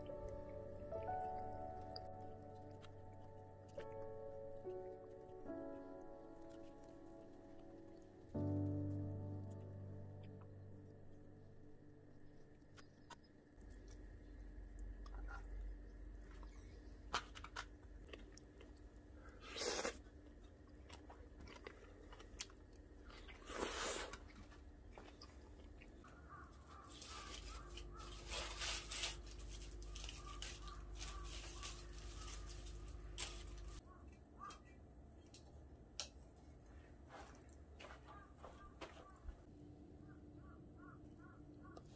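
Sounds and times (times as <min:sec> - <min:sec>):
scraping rustles: 0:26.8 - 0:33.8.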